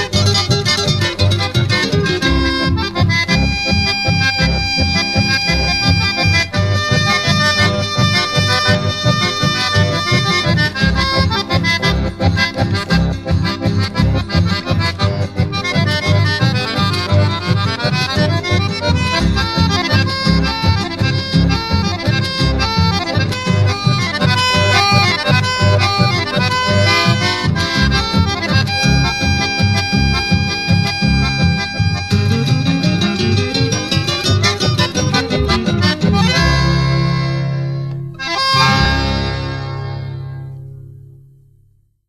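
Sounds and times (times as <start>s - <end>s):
accordion playing quick runs: 0.0s - 40.6s
pulsing bass accompaniment: 0.0s - 41.9s.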